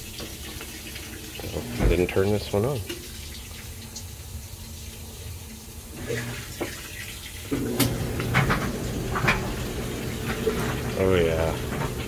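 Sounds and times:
clothes dryer humming: 0.0 - 2.8, 5.8 - 6.8, 7.4 - 12.0
washing machine water running: 0.0 - 12.0.

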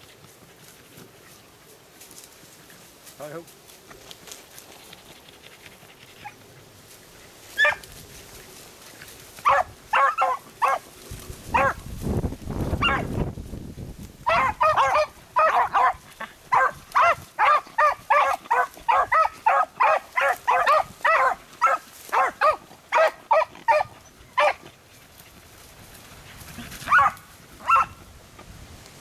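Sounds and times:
dogs baying: 7.5 - 7.9, 9.4 - 10.9, 11.5 - 11.8, 12.8 - 13.1, 14.2 - 25.4, 26.0 - 28.0.

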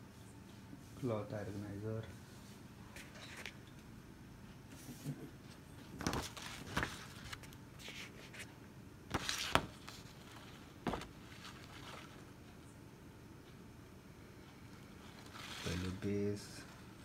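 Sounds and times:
paper rustling: 5.9 - 8.5, 9.1 - 12.3, 15.0 - 16.8.

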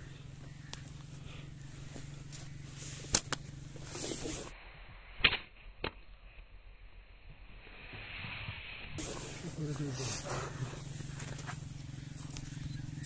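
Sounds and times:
slingshot rubber bands snapping: 3.1 - 3.4.

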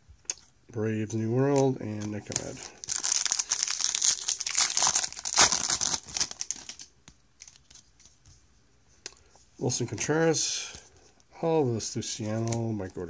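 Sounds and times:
foil wrapper tearing and crinkling: 2.0 - 7.8.

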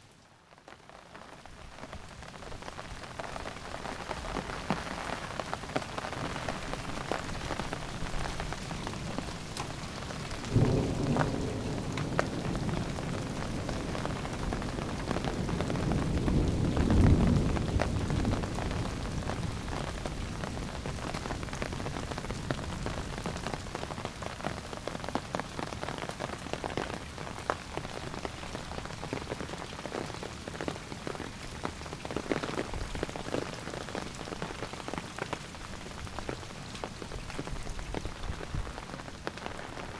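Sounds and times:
raindrops ticking on surfaces: 0.0 - 39.9
steady rain falling: 0.0 - 39.9
thunder rumbling: 7.2 - 24.0.

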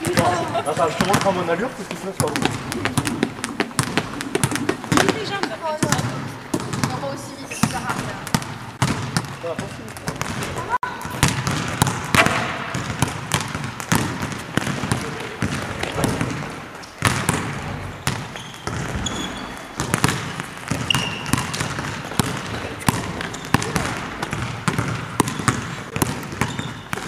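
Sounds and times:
basketballs bouncing on gym floor: 0.0 - 27.0
short high squeaks: 18.4 - 19.7.

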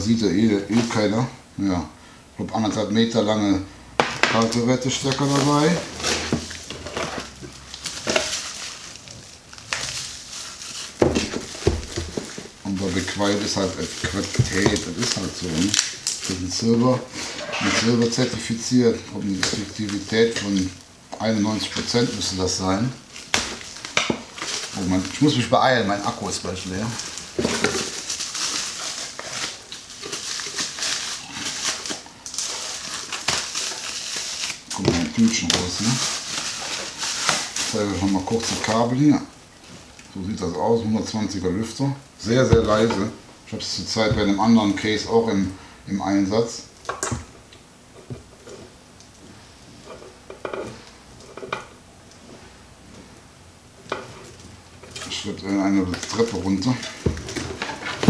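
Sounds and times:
bubble wrap crinkling: 3.2 - 45.5, 54.9 - 58.0.

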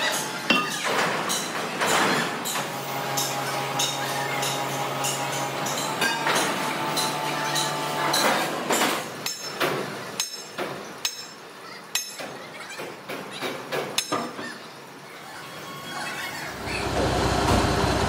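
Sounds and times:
hammer striking metal: 0.1 - 12.3
low machine hum: 16.4 - 18.0.

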